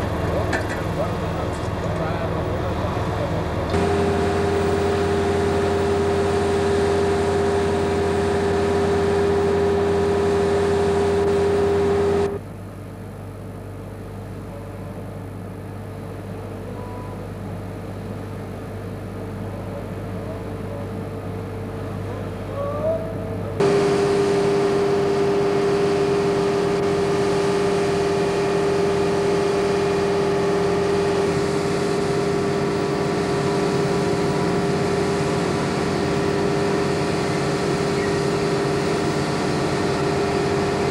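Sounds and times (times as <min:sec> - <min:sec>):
crane diesel engine running: 0:00.0 - 0:12.5, 0:23.4 - 0:40.9
engine whine: 0:00.0 - 0:12.5, 0:23.3 - 0:40.9.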